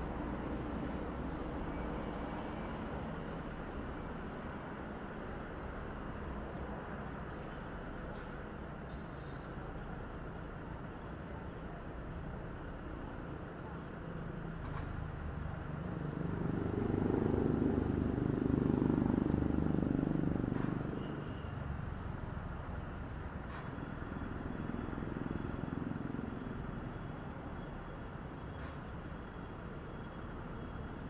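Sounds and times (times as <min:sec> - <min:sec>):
road vehicle passing: 0:15.0 - 0:22.6.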